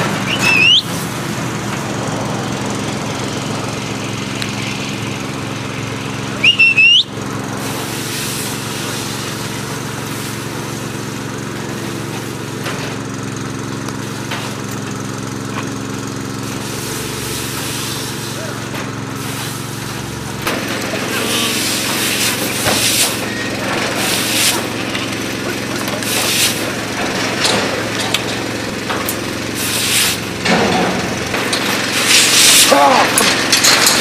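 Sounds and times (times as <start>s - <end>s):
small engine running: 0.0s - 34.0s
loud rising whistles: 0.2s - 1.0s, 6.4s - 7.2s.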